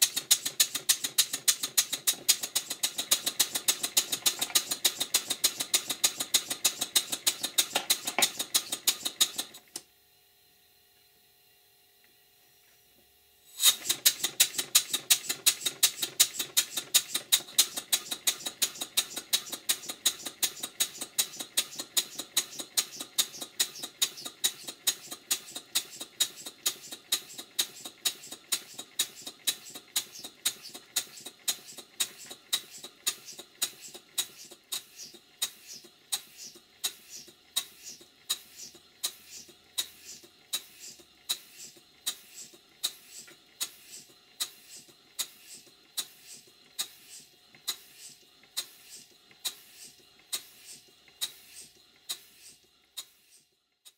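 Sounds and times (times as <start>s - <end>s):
model steam engine puffing: 0.0s - 9.8s, 13.5s - 53.5s.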